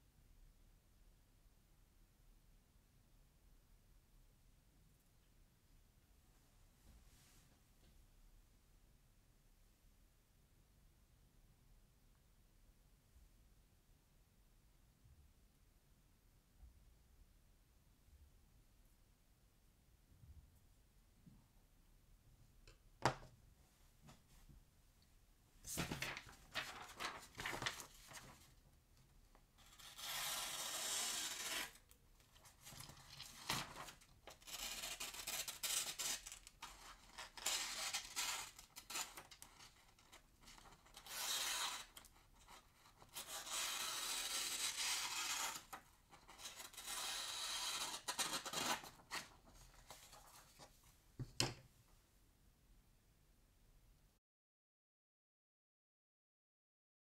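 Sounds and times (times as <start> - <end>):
paper crinkling: 25.7 - 28.5, 31.4 - 43.6
knife slicing through paper: 29.7 - 31.8, 32.6 - 42.1, 43.0 - 49.3.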